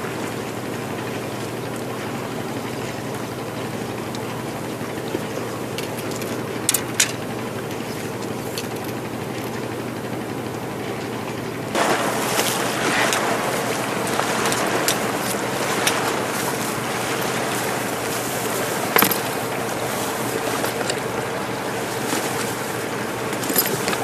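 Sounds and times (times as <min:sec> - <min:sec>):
sea waves splashing against rocks: 0:11.7 - 0:24.0.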